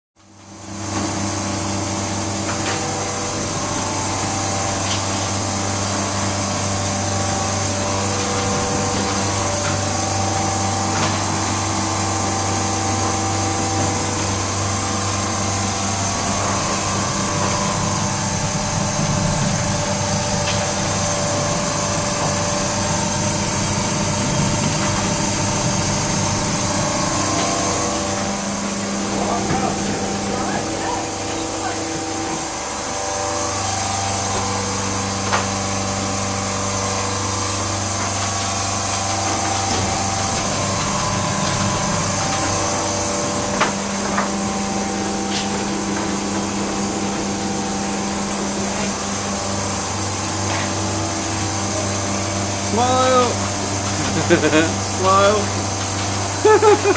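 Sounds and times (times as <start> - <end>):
machine hum: 0.2 - 56.9
loud even hiss: 52.6 - 55.8.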